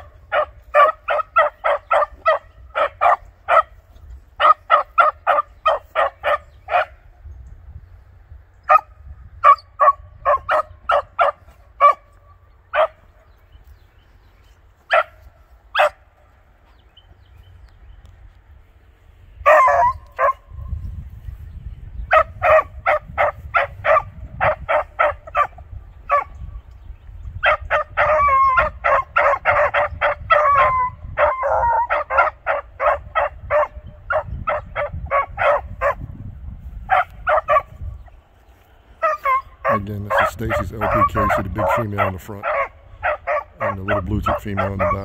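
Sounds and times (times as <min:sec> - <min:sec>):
dogs barking: 0:00.0 - 0:07.1, 0:08.6 - 0:13.3, 0:14.8 - 0:16.3, 0:19.4 - 0:20.6, 0:22.0 - 0:26.5, 0:27.4 - 0:36.2, 0:36.8 - 0:38.1, 0:38.9 - 0:45.0
dogs bawling: 0:27.5 - 0:36.0, 0:39.0 - 0:45.0.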